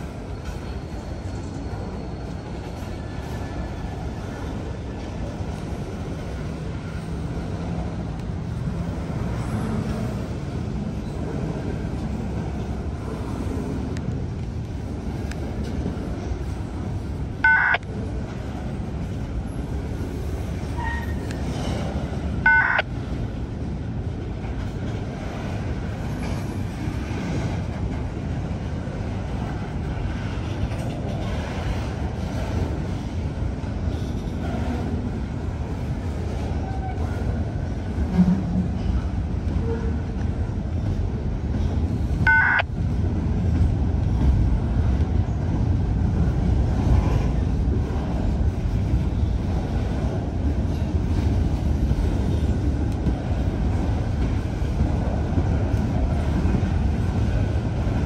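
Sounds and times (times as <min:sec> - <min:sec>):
freight train wheels rumbling: 0:00.0 - 0:58.0
short high beep: 0:17.4 - 0:17.8, 0:22.5 - 0:22.8, 0:42.3 - 0:42.6.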